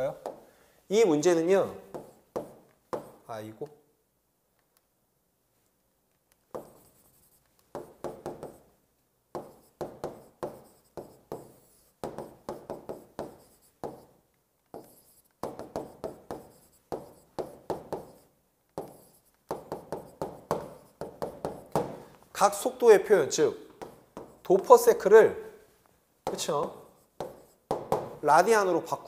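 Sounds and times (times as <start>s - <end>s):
stylus tapping and scratching on screen: 0.0s - 0.5s, 1.1s - 3.8s, 5.5s - 29.0s.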